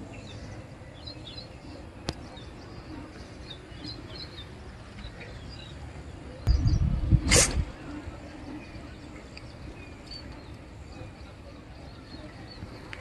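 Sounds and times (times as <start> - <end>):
small birds chirping: 0.0 - 7.3.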